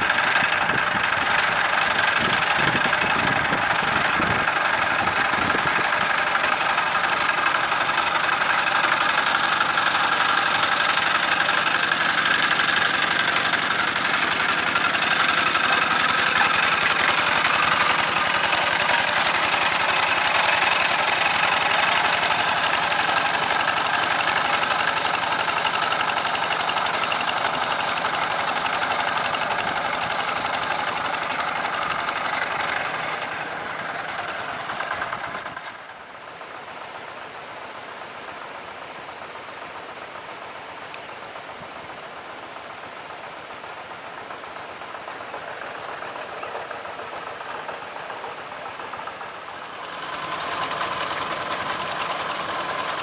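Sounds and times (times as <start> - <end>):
diesel engine running under load: 0.0 - 53.0.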